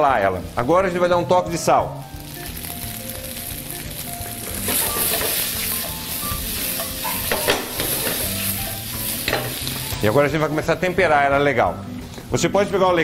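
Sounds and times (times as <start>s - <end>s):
potatoes sizzling in a frying pan: 0.0s - 11.0s
potato slices clattering in pan: 4.5s - 5.9s, 6.6s - 8.4s.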